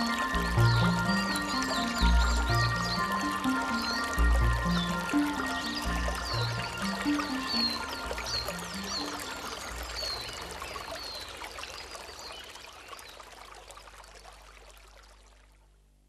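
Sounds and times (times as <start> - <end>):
high falling chirps: 0.0 - 10.5.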